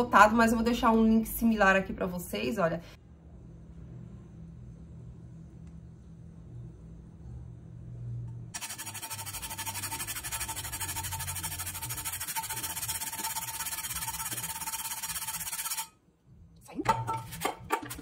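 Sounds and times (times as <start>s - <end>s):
sponge scrubbing frying pan: 8.6s - 15.9s.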